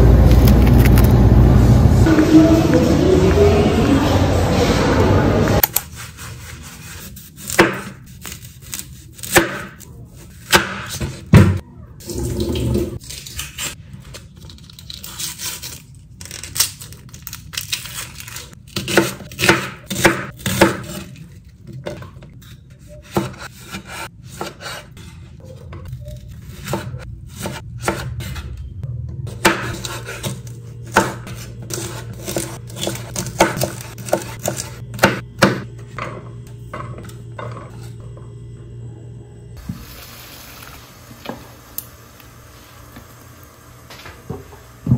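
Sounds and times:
knife chopping on wooden board: 0:07.4 - 0:08.0, 0:29.4 - 0:35.6.

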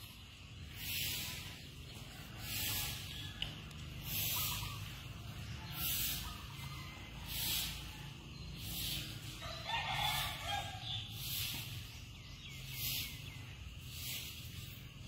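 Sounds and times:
broom sweeping leaves: 0:00.0 - 0:15.0
rooster crowing: 0:09.3 - 0:11.0.

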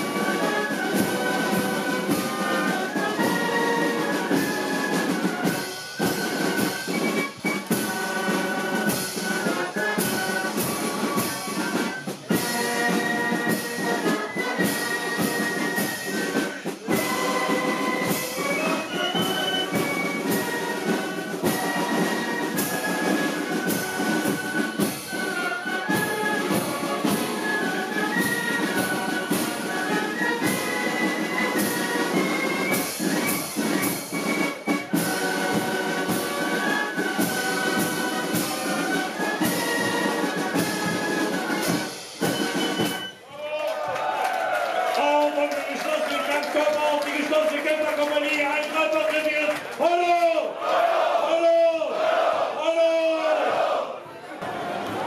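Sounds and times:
brass band melody: 0:00.0 - 0:43.2
drum beats: 0:00.0 - 0:50.6.

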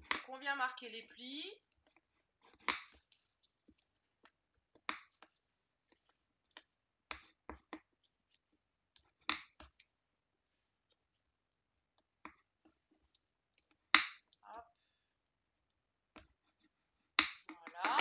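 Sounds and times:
paper rustles and taps: 0:17.2 - 0:18.0.

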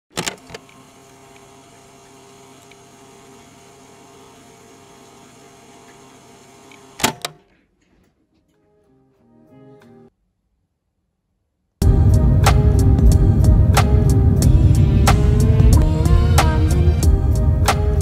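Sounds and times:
curtain track motor humming: 0:00.2 - 0:07.1, 0:12.8 - 0:18.0.

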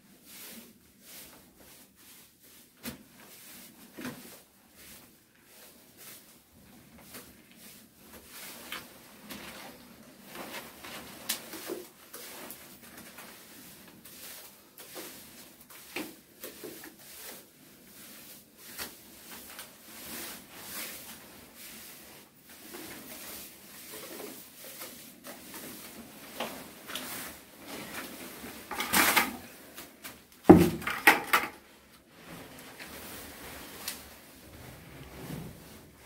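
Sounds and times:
tool knocking on floor: 0:30.5 - 0:31.4.

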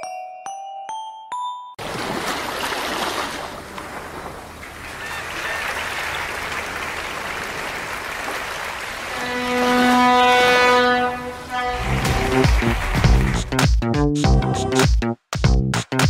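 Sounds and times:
glockenspiel-like music tones: 0:00.0 - 0:01.8
audience applauding: 0:04.8 - 0:10.3, 0:11.5 - 0:13.6.

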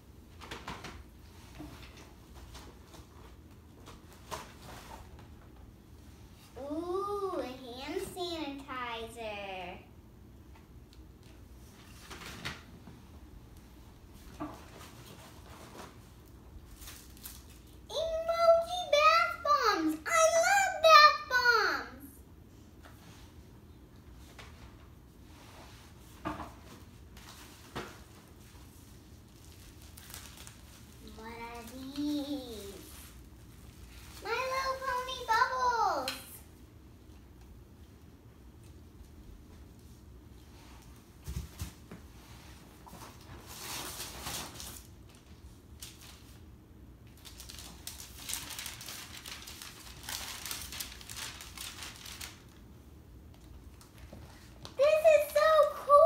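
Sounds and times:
packaging rustling and crinkling: 0:14.6 - 0:17.8, 0:26.7 - 0:34.2, 0:47.1 - 0:52.6
handling bubble wrap: 0:14.8 - 0:17.9, 0:27.1 - 0:35.6, 0:47.1 - 0:52.6.

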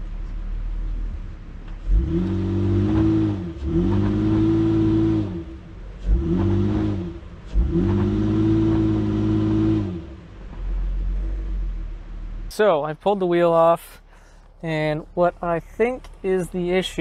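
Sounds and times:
truck engine revving: 0:01.7 - 0:11.9.

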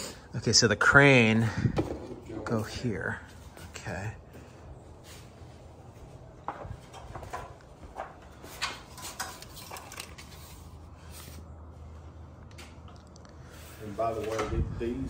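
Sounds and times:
plastic toy parts clattering: 0:09.0 - 0:10.5.

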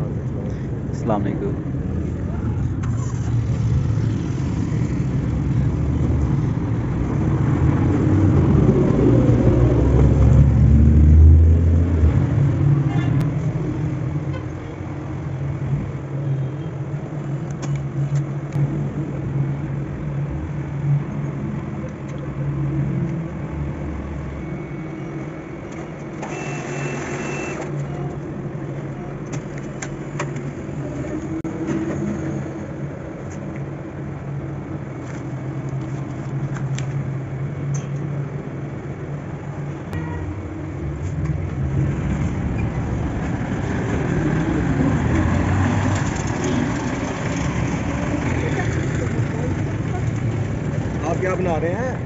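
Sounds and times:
traffic noise: 0:00.0 - 0:52.0
cash dispenser whirring: 0:26.2 - 0:27.8.

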